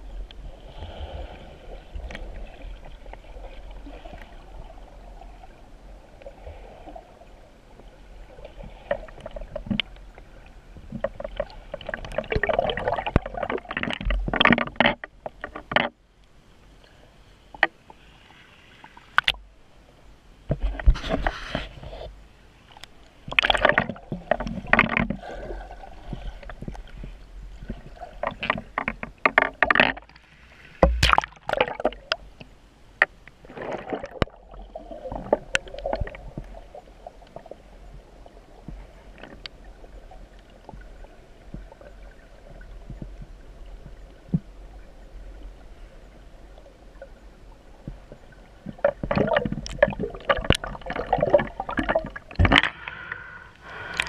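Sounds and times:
low rumble of waterfall underwater: 0:00.0 - 0:54.0
underwater bubbling and knocking: 0:08.8 - 0:16.0, 0:23.3 - 0:30.2, 0:30.8 - 0:45.0, 0:47.8 - 0:52.8.

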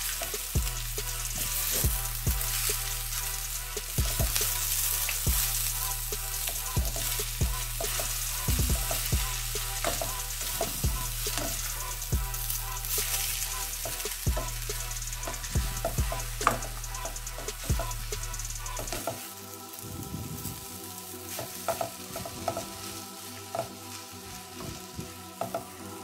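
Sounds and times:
noodles sizzling in a pot: 0:00.0 - 0:26.0
spatula knocking and scraping pot: 0:06.4 - 0:13.1.

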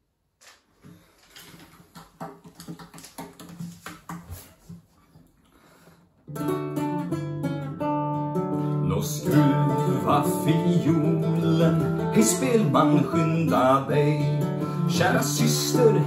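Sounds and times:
nylon-string guitar chords: 0:06.3 - 0:16.0.

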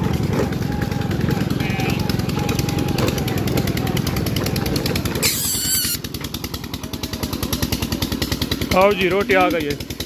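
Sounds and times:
motorcycle engine running: 0:00.0 - 0:10.0
high-pitched squeal: 0:05.2 - 0:06.1.

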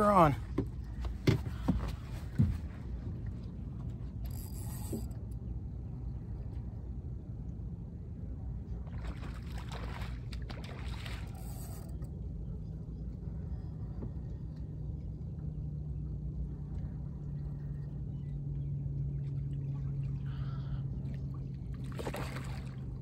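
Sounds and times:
low rumble: 0:00.0 - 0:23.0
steady low hum: 0:00.0 - 0:23.0.

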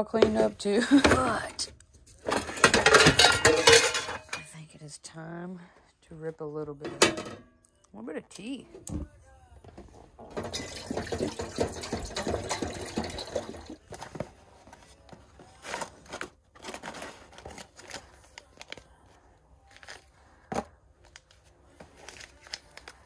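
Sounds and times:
water pouring into a pot: 0:10.4 - 0:13.8
cardboard and paper rustling: 0:13.8 - 0:23.0.

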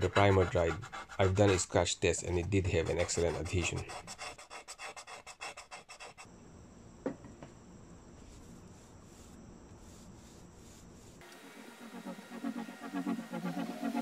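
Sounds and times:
fingernail scratching primer: 0:00.0 - 0:01.8, 0:02.4 - 0:06.3
faint steady hiss: 0:06.3 - 0:12.4
thin high whine: 0:08.0 - 0:14.0.

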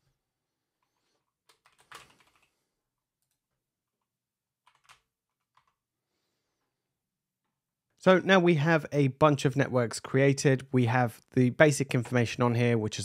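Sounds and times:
faint keyboard typing: 0:00.8 - 0:05.9.

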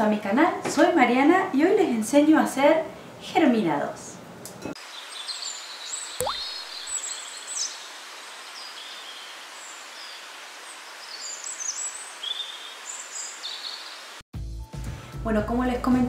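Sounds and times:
outdoor ambience hiss: 0:00.0 - 0:14.2
small birds chirping: 0:04.8 - 0:14.2.

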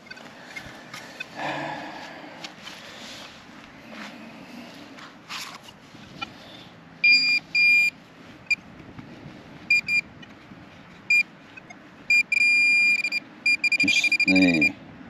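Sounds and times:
metal detector beeping: 0:07.0 - 0:07.9, 0:09.7 - 0:10.1, 0:11.1 - 0:14.8.

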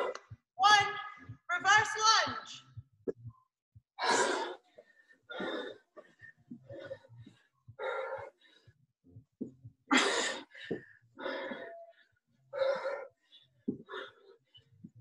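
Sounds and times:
person breathing hard: 0:04.0 - 0:09.2, 0:09.9 - 0:14.6.

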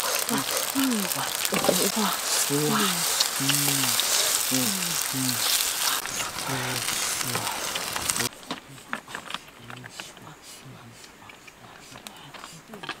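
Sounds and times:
mushrooms sizzling in a pan: 0:00.0 - 0:08.3
wooden spatula stirring: 0:00.0 - 0:10.2
man speaking: 0:00.3 - 0:13.0.

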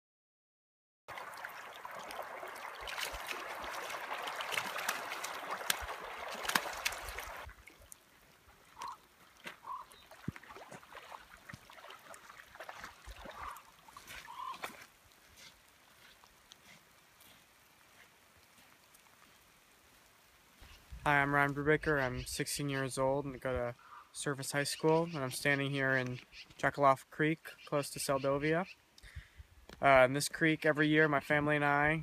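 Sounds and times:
water rushing: 0:01.1 - 0:15.2
short bird calls: 0:08.8 - 0:09.0, 0:09.6 - 0:10.2, 0:13.3 - 0:14.7, 0:23.8 - 0:24.2.

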